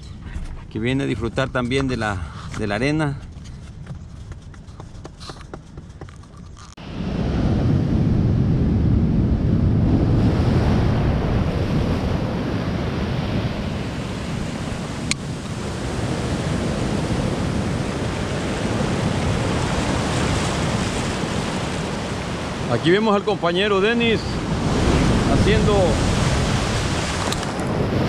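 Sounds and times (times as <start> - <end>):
wind buffeting microphone: 0.0 - 28.0
ocean surf breaking: 6.8 - 28.0.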